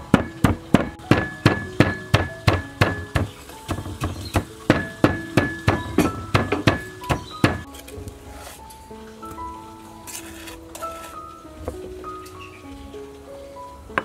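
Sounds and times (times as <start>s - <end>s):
pestle pounding in wooden mortar: 0.1s - 7.7s.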